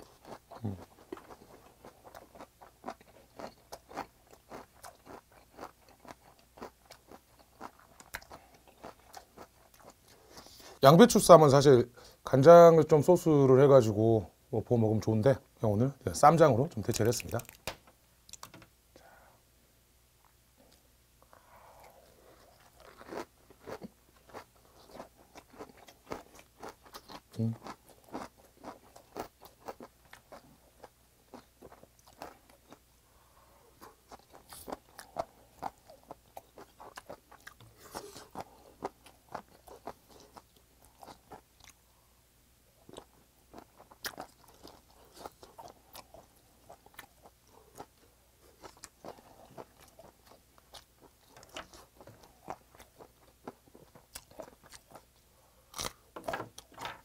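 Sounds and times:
close chewing with crunches: 0.0 - 10.8, 21.8 - 32.8, 33.8 - 41.8, 42.8 - 57.0.

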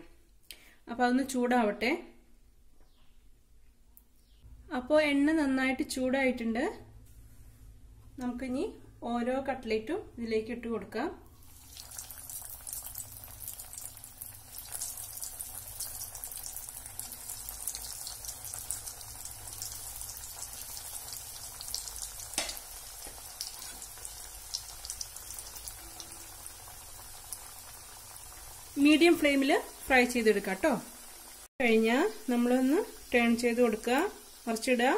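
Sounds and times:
deep-frying sizzle and crackle: 11.3 - 34.9.

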